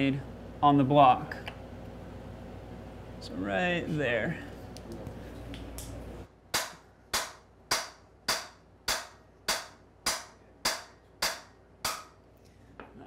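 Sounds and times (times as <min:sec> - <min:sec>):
hammer striking metal bar: 0:06.5 - 0:12.2.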